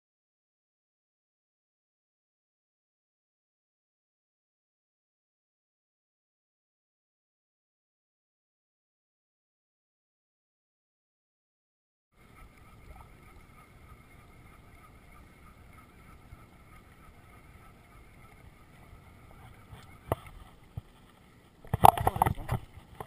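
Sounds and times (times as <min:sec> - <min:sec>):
faint steady whine: 0:12.2 - 0:23.0
wind and water noise: 0:12.2 - 0:23.0.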